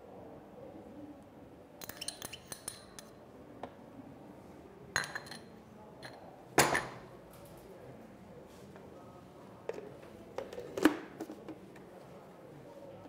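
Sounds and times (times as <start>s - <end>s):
spoon scraping cup: 1.8s - 3.0s
clinking ceramic bowls: 5.0s - 7.0s.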